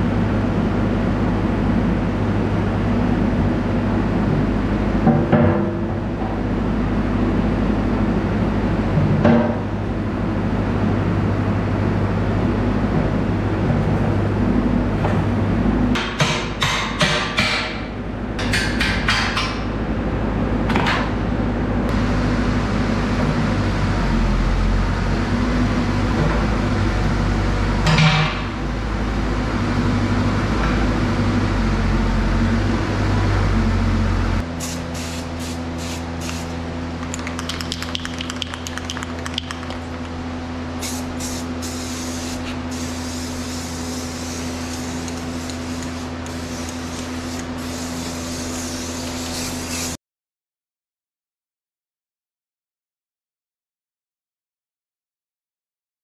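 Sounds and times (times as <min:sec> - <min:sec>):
diesel engine droning: 0:28.6 - 0:35.8
spray-paint can hissing: 0:34.6 - 0:39.8, 0:40.8 - 0:50.0.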